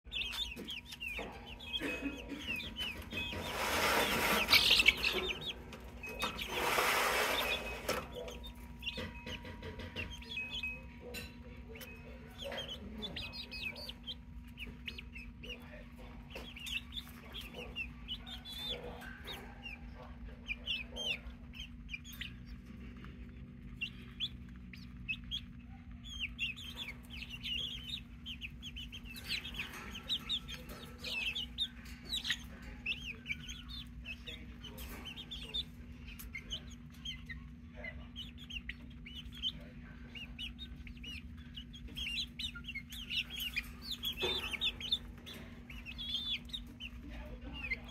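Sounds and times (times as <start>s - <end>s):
chicks peeping and clucking: 0.0s - 47.9s.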